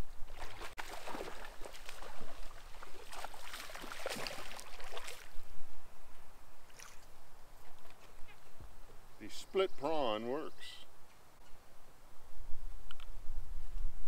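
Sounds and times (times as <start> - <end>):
water splashing and gurgling: 0.2 - 5.4.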